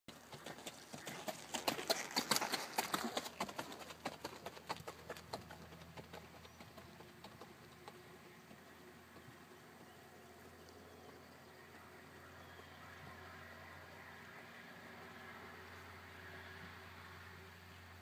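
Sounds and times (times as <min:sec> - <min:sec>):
hoofbeats on sand: 0:00.1 - 0:10.0.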